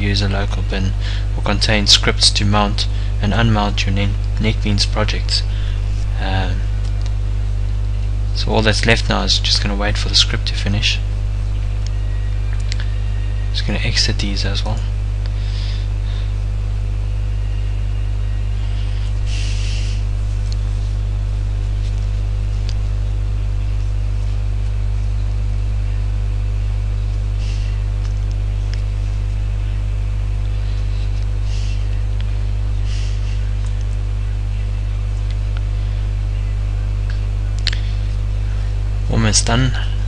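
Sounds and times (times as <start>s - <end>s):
electrical mains hum: 0.0s - 40.0s.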